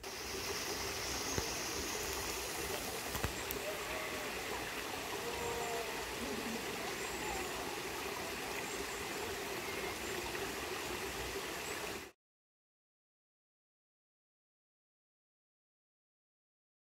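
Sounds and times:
stream trickling over stones: 0.0s - 12.2s.

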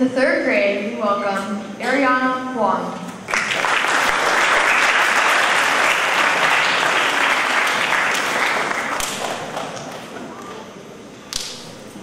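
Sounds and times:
audience applauding: 3.3s - 10.1s.

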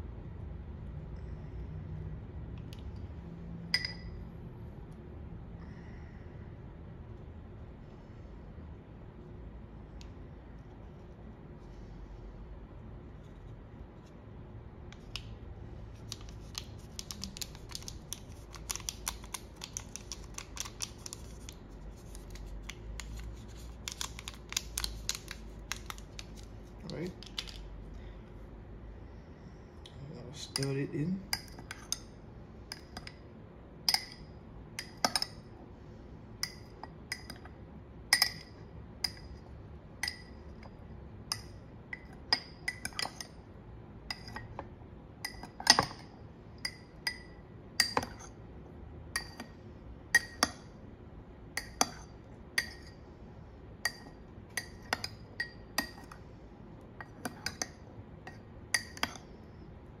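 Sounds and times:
metal spoon clinking ceramic cups: 3.8s - 4.2s, 46.6s - 48.3s, 49.2s - 49.5s, 50.2s - 50.6s, 51.6s - 53.0s, 53.8s - 56.2s, 57.0s - 59.2s.

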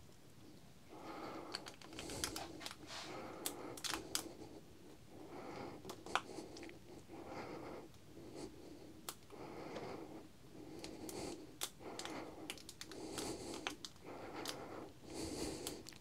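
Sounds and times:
rustling of hands handling wire: 1.3s - 5.0s, 10.8s - 15.0s
light clicks of plastic parts: 1.5s - 2.8s, 3.4s - 4.3s, 9.0s - 9.9s, 10.8s - 14.6s.

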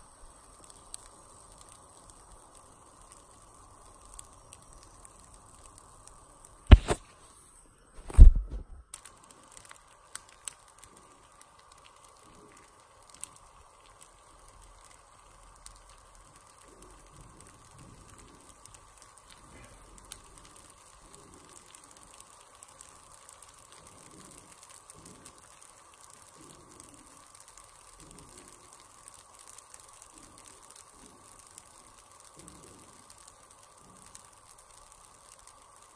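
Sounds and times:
batter crackling and popping in pan: 0.0s - 35.9s
steady faint hum: 0.0s - 35.9s
sharp click: 6.7s - 7.1s.

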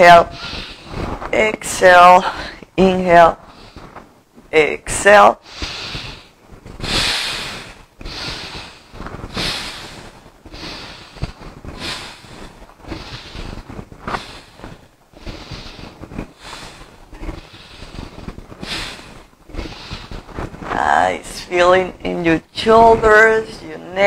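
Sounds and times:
woman breathing: 0.2s - 1.3s, 2.2s - 2.7s, 3.4s - 4.0s, 5.4s - 20.8s.

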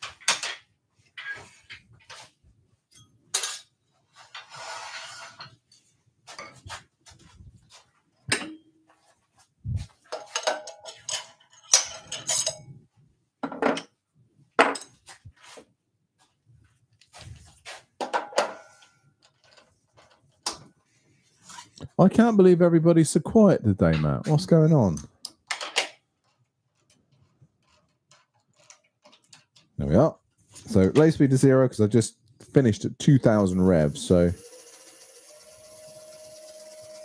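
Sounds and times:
knocks of tools being handled: 8.2s - 9.0s, 9.9s - 12.7s, 18.0s - 20.7s.

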